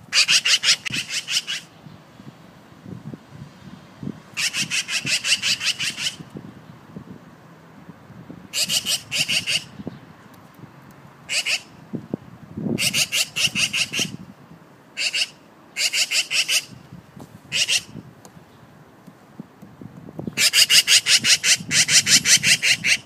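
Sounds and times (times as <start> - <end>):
magpie chattering rattle: 0.1 - 1.7, 4.4 - 6.2, 8.6 - 9.7, 11.3 - 11.7, 12.8 - 14.2, 15.0 - 16.7, 17.5 - 17.9, 20.4 - 23.0.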